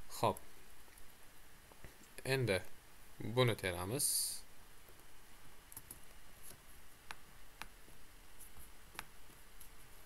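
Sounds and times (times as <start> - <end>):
keyboard and mouse clicks: 5.7 - 7.8.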